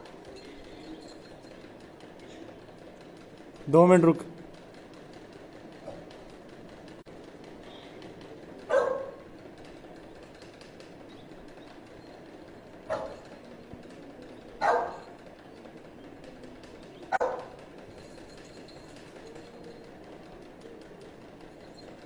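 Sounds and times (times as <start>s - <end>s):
dog barking: 8.7s - 9.2s, 12.9s - 13.2s, 14.6s - 15.1s, 17.1s - 17.6s.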